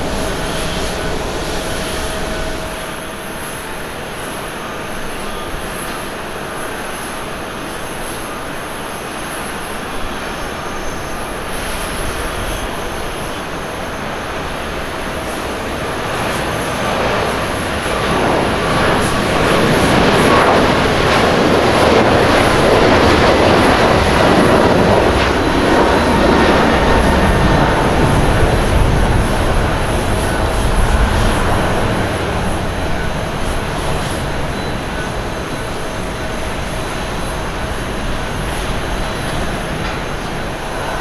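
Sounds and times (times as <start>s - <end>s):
jet engines at takeoff: 0.0s - 41.0s.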